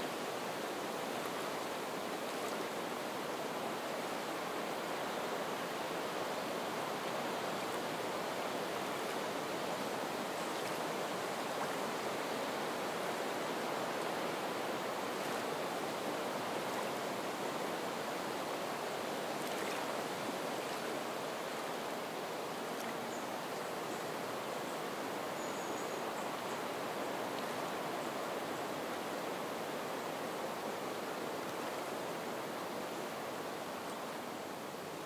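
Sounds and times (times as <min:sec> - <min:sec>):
wind over reeds: 0:00.0 - 0:35.0
water lapping shore: 0:19.3 - 0:21.0.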